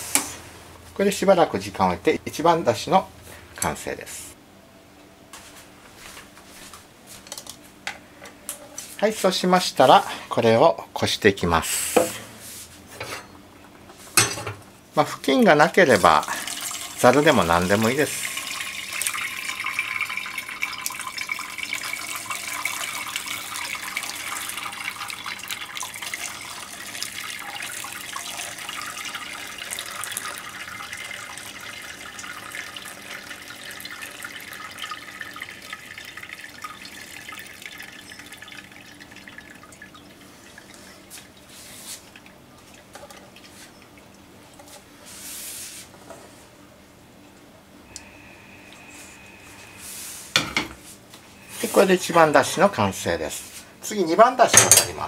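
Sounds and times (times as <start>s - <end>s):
liquid trickling through cloth: 15.9s - 45.8s
water dripping: 16.5s - 44.2s.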